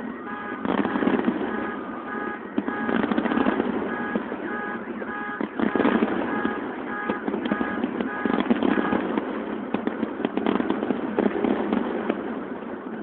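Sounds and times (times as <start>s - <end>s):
electronic alarm beeping: 0.0s - 9.0s
distant fireworks bangs: 0.0s - 13.0s
rough background rumble: 0.0s - 13.0s.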